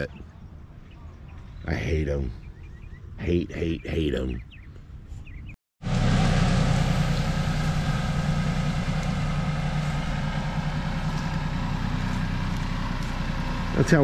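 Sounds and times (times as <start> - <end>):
tree dragged across grass: 5.8 - 13.8
tractor engine running: 5.8 - 14.0.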